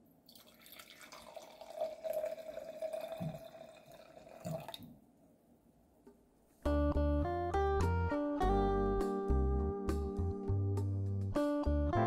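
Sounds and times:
wine pouring into a glass: 0.3 - 4.9.

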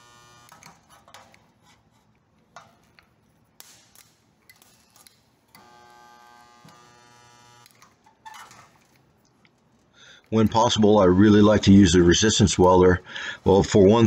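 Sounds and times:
welder electric buzz: 0.0 - 0.9, 3.6 - 8.7.

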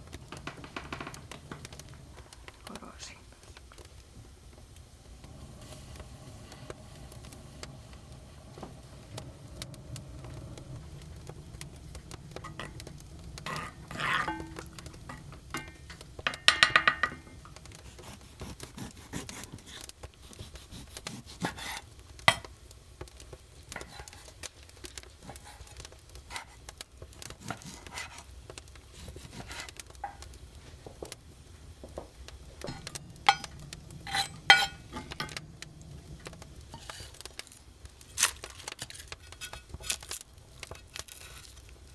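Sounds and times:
pieces scraped into pot: 12.3 - 16.3, 23.8 - 24.4, 25.2 - 28.3, 28.9 - 30.2, 32.6 - 35.4, 36.6 - 41.7.

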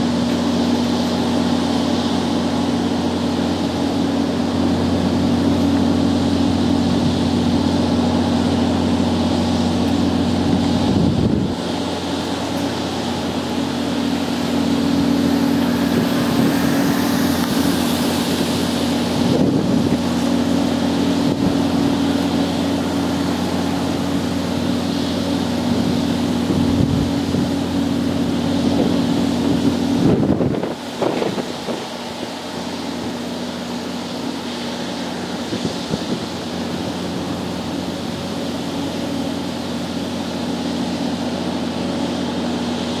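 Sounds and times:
wind noise on microphone: 0.0 - 42.9
low mechanical hum: 0.0 - 43.0.

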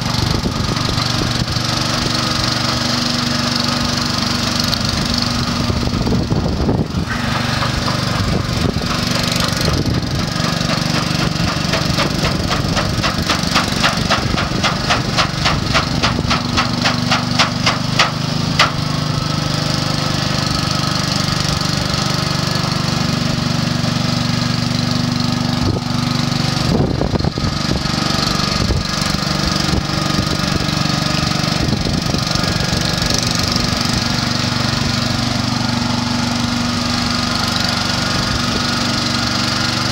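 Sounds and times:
small petrol engine running: 0.0 - 39.9
paddle wheel splashing water: 7.0 - 21.6.

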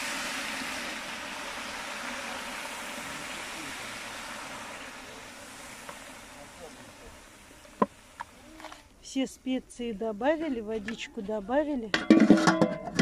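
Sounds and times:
meat sizzling in hot oil: 0.0 - 8.4.

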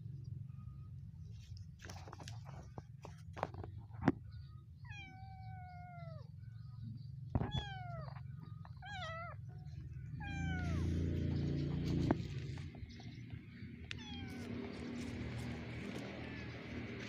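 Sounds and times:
kitten meowing: 7.4 - 9.4, 10.1 - 11.6, 13.9 - 15.1.

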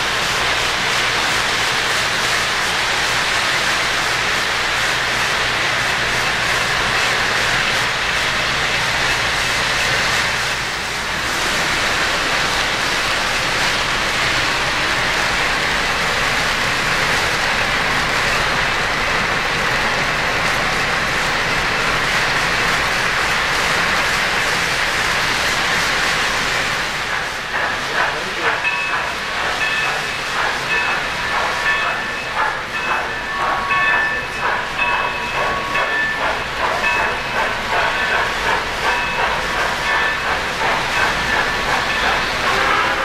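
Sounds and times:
model train wheels rattling on rails: 26.8 - 43.0.

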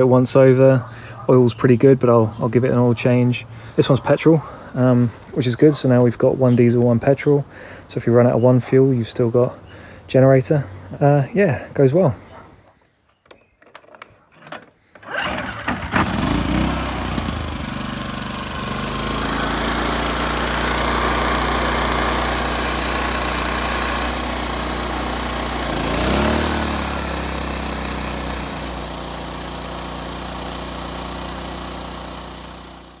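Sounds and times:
small generator engine running: 14.9 - 33.0.

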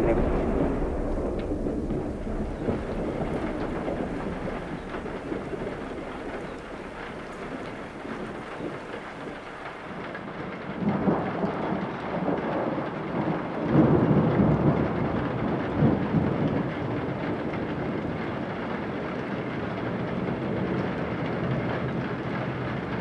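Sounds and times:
low rumbling noise: 0.0 - 10.4.

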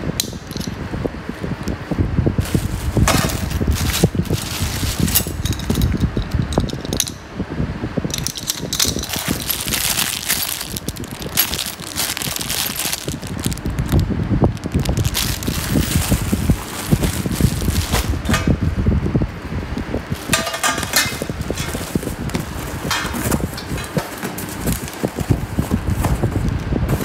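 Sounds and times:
metal bolts clinking in bag: 0.2 - 0.8, 2.4 - 7.2, 8.1 - 14.0, 14.8 - 18.4, 20.2 - 22.2
cellophane crinkling: 2.4 - 6.9, 8.3 - 18.3, 20.1 - 26.4.

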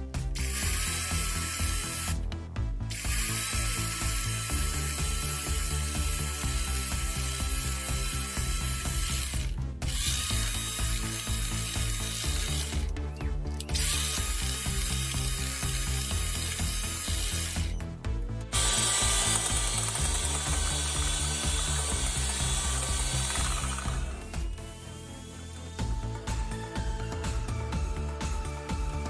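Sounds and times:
electric hand mixer whipping cream: 2.9 - 12.9, 13.8 - 17.8, 18.5 - 25.9.

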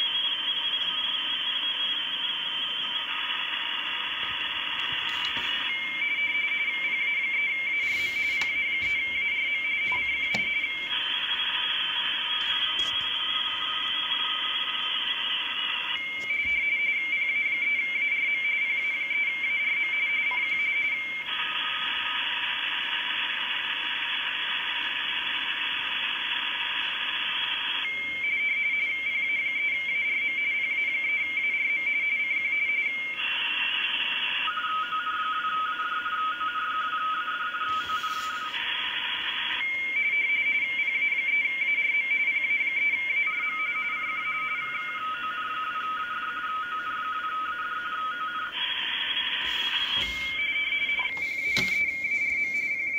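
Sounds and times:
two-tone warbling radio signal: 0.0 - 16.9, 37.6 - 39.8, 48.0 - 52.9
radio band hiss: 3.0 - 5.8, 7.7 - 9.2, 37.7 - 39.6, 48.6 - 52.7.

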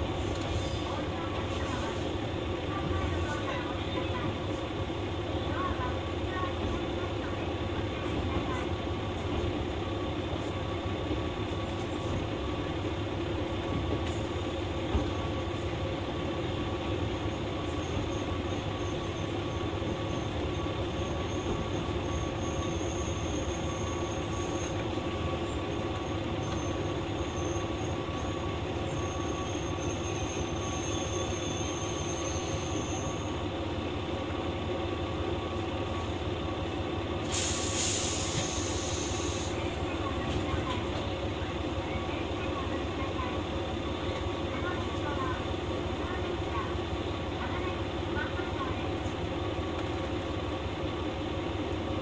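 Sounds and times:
diesel railcar engine drone: 0.0 - 52.0
high wheel squeal: 17.7 - 25.0, 25.7 - 33.5
short hiss: 37.2 - 39.5.

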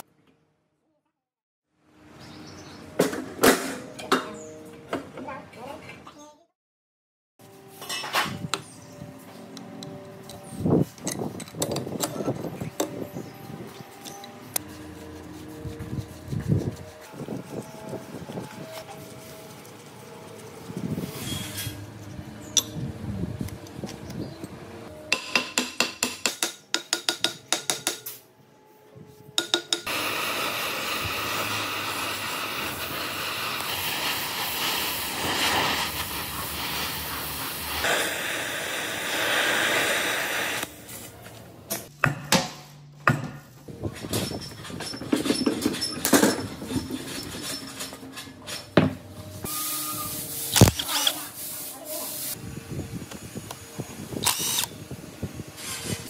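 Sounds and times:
sharp metallic knocks: 25.1 - 28.1
gas torch flame hissing: 29.9 - 41.1.

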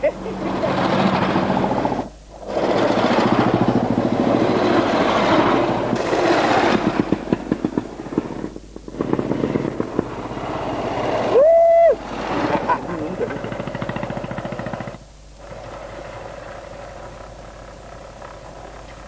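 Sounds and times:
motorcycle engines thumping: 0.0 - 11.3.

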